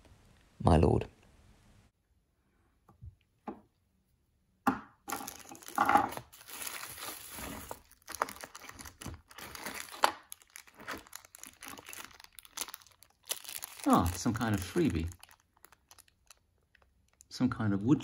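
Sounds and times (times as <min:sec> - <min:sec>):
plastic bags crinkling: 0:05.1 - 0:17.4.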